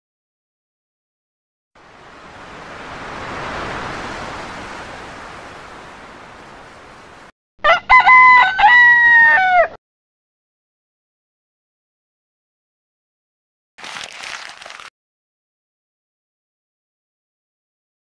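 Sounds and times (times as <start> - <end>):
sea surf: 1.8 - 7.3
rooster crowing: 7.6 - 9.8.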